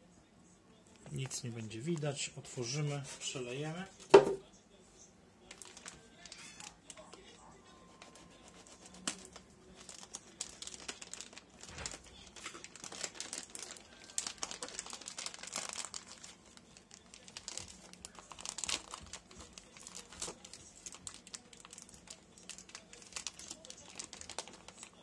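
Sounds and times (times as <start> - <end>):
plastic bag crinkling: 5.4 - 7.4, 8.1 - 25.0.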